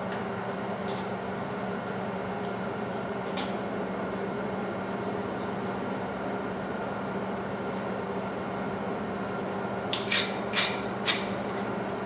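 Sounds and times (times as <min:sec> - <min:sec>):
forge blower humming: 0:00.0 - 0:12.0.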